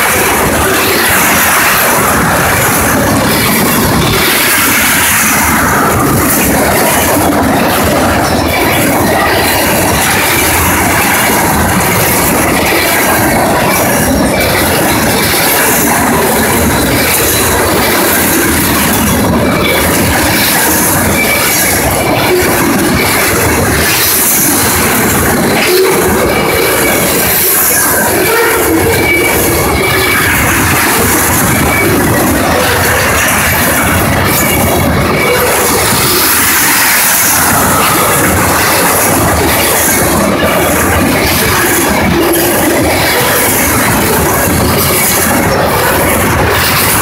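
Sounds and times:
freight train rolling past: 0.0s - 47.0s
steel wheels rattling on rails: 0.0s - 47.0s.

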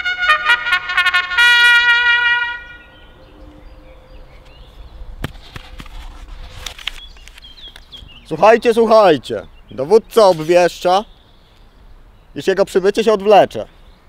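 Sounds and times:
trumpet fanfare: 0.0s - 3.0s
paper rustle: 5.3s - 7.5s.

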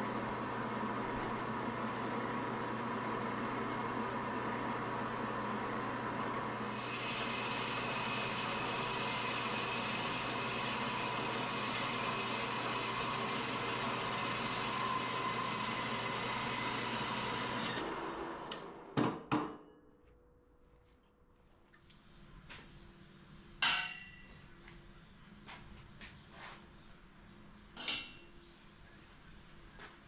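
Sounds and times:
bandsaw cutting steel: 6.6s - 18.7s.

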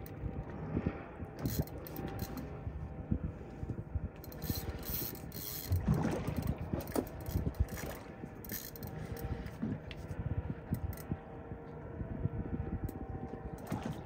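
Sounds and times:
fishing reel gears grinding: 1.4s - 2.5s, 4.2s - 9.2s.

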